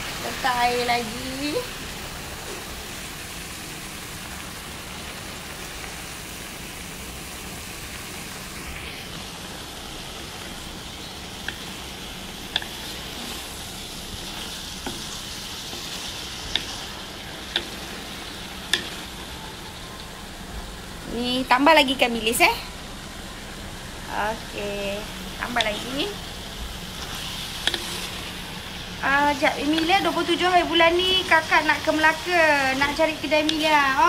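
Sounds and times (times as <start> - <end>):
vegetables sizzling in a pot: 0.0 - 34.0
spatula clicking against pot: 17.5 - 17.8, 18.7 - 19.0, 27.6 - 27.9.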